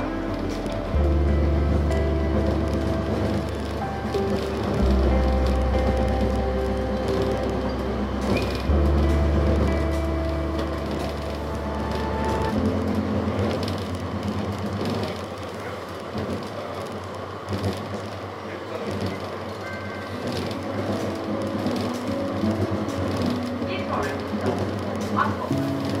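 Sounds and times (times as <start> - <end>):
deep hum: 0.0 - 14.8
tram rolling on rails: 0.0 - 26.0.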